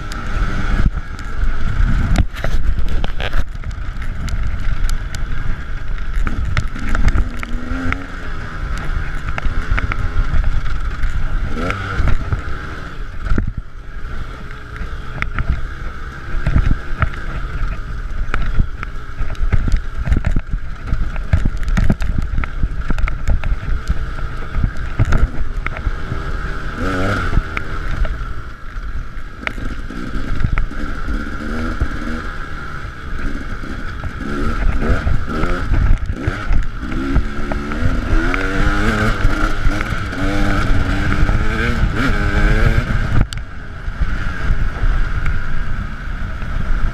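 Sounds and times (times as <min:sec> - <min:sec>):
wind on microphone: 0:00.0 - 0:14.0, 0:29.0 - 0:46.9
dirt bike engine revving: 0:00.0 - 0:46.9.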